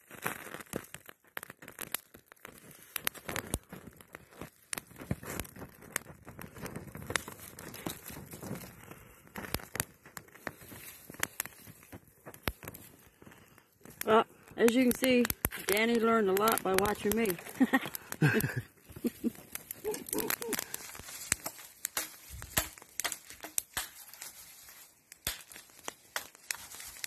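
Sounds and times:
fire crackling with sharp snaps: 0.0 - 27.0.

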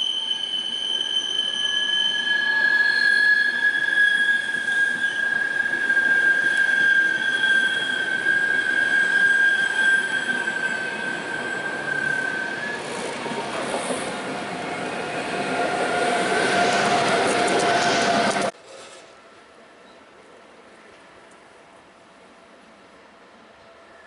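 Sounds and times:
high-pitched wheel squeal: 0.0 - 18.5
train wheels rumbling: 0.5 - 19.1.

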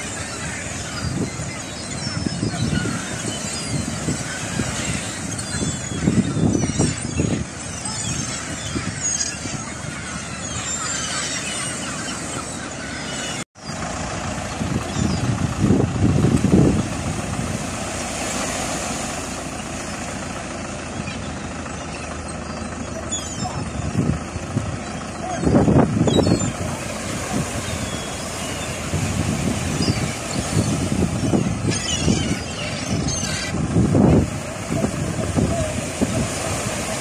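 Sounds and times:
gulls calling: 0.0 - 37.0
surf rushing: 0.0 - 37.0
wind gusting on microphone: 14.4 - 18.3, 23.6 - 37.0.

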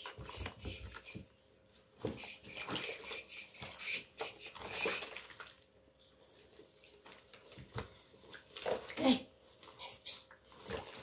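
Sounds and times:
water sloshing in plastic basin: 0.0 - 11.0.

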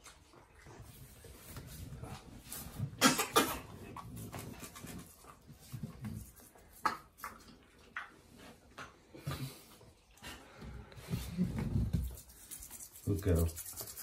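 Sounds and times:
toothbrush scrubbing teeth: 11.2 - 14.0.

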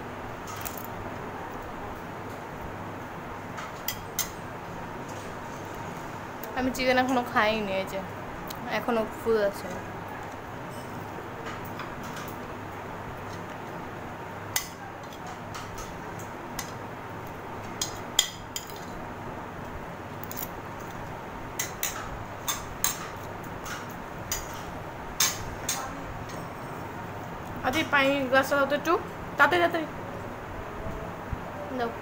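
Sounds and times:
steady background hum: 0.0 - 32.0
cutlery clinking on plates: 14.6 - 16.8, 17.6 - 19.0.

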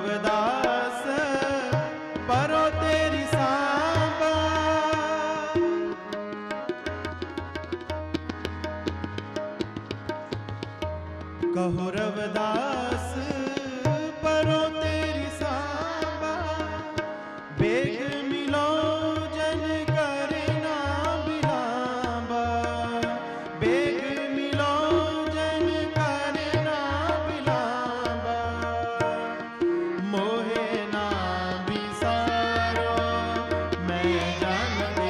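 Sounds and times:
tabla beat: 0.0 - 35.0
person singing ornamented melody: 30.0 - 35.0.

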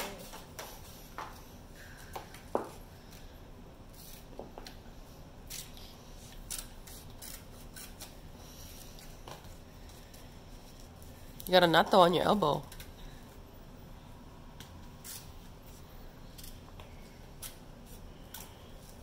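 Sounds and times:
scissors snipping paper: 5.5 - 8.2.

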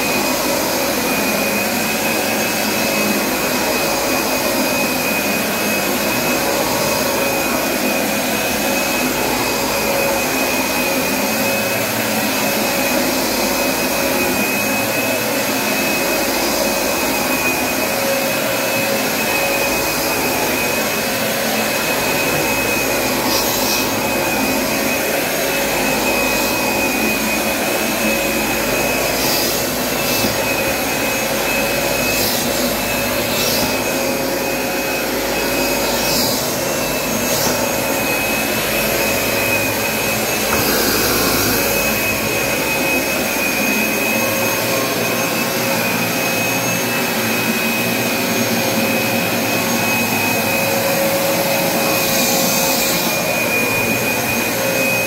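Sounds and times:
carpet cleaner suction rush: 0.0 - 55.0
high motor whine: 0.0 - 55.0.

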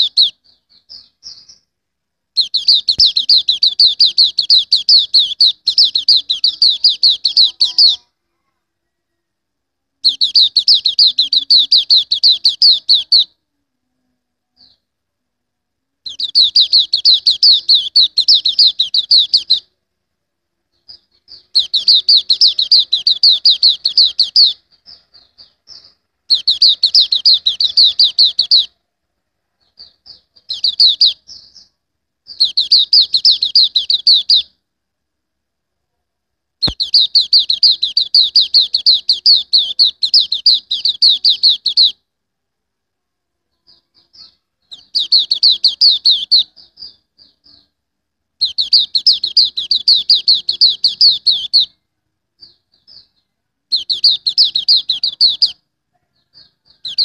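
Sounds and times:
songbird chattering trill: 0.0 - 1.7, 2.4 - 8.1, 10.0 - 13.3, 16.0 - 19.7, 20.7 - 28.8, 29.6 - 31.7, 32.3 - 34.6, 36.6 - 42.0, 43.5 - 47.8, 48.4 - 51.8, 52.4 - 57.0.

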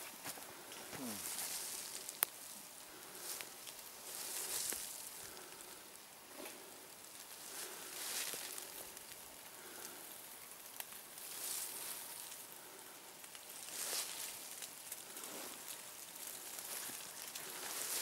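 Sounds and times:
footsteps crunching on trail: 0.0 - 2.4, 3.1 - 5.0, 16.6 - 18.0
faint steady hiss: 0.0 - 18.0.

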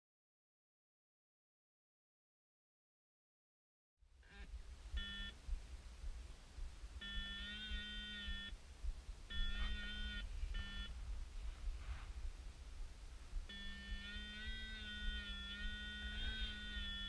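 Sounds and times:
low rumble of wind: 4.0 - 17.0
electronic beeps: 5.0 - 5.4, 7.0 - 8.6, 9.3 - 11.0, 13.5 - 17.0.

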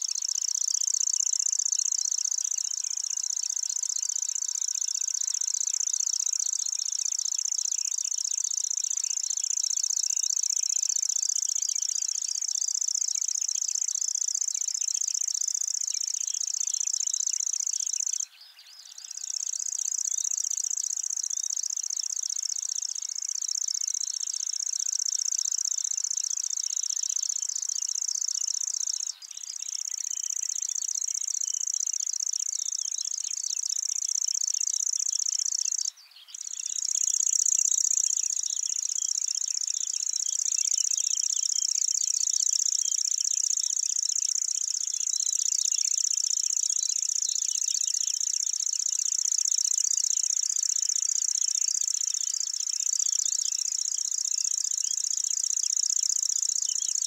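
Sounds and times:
bird singing rapid trill: 0.0 - 57.0.

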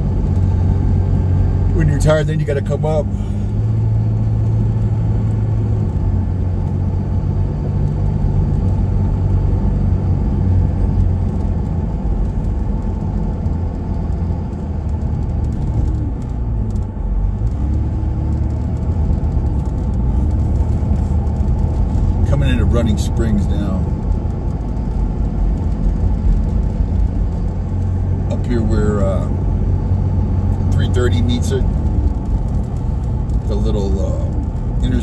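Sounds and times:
engine and road noise rumble: 0.0 - 35.0.

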